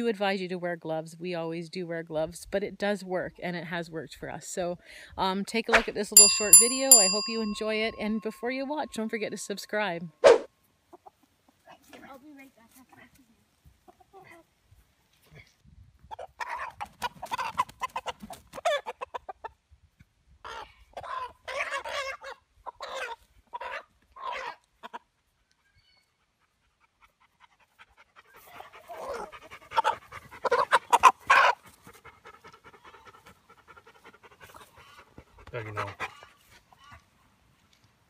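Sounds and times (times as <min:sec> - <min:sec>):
rooster squawking: 0:10.2 - 0:10.5.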